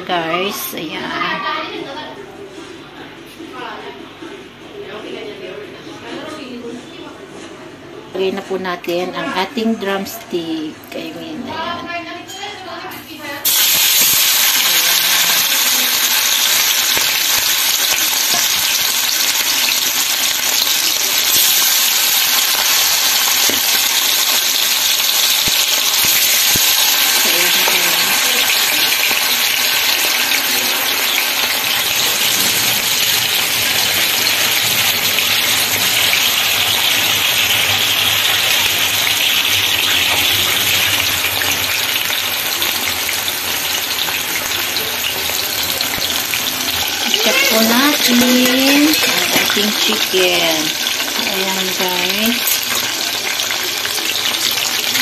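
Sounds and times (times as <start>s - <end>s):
chicken sizzling in hot oil: 13.4s - 55.0s.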